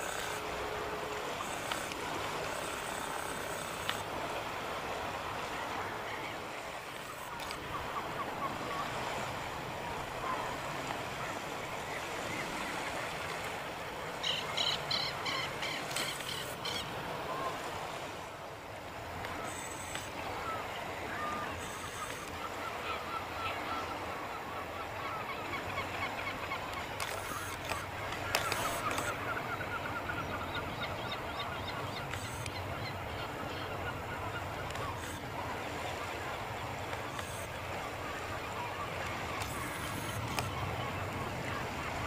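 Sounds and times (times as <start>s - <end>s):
steady background noise: 0.0s - 42.0s
birds calling: 14.1s - 17.6s, 19.3s - 42.0s.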